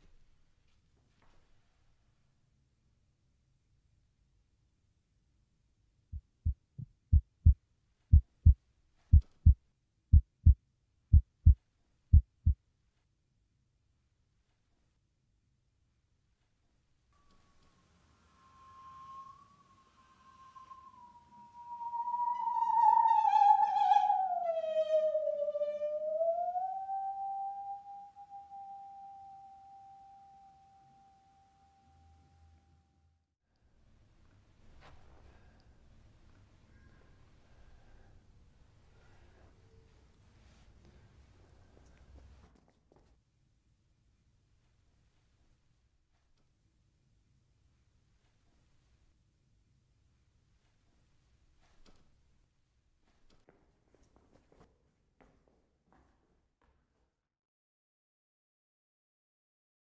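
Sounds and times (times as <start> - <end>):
heartbeat thumps: 6.2 - 12.6
bowed singing saw note: 18.1 - 33.0.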